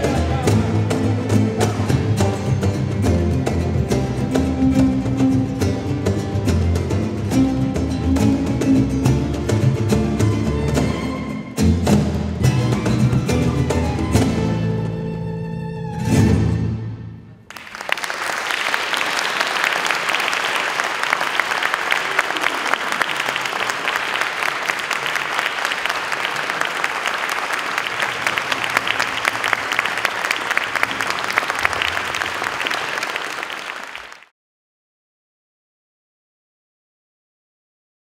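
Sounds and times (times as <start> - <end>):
crowd applauding: 17.4 - 34.3.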